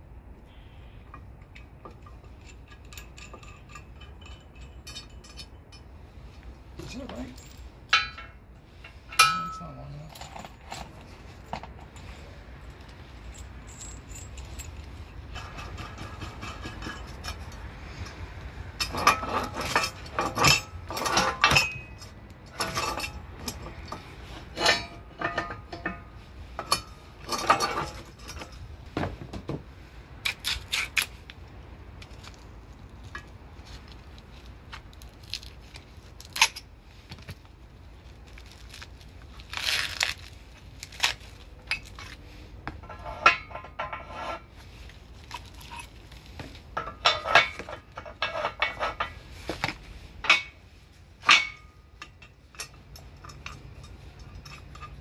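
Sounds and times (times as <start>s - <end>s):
metal parts clinking: 1.1s - 5.9s, 6.8s - 17.6s, 18.8s - 28.7s, 51.2s - 55.0s.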